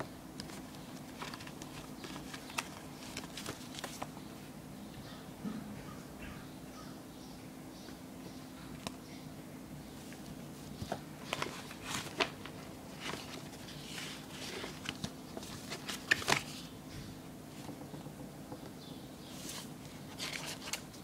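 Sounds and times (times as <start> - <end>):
faint steady hum: 0.0 - 21.0
handling clicks and rustles: 0.4 - 4.2.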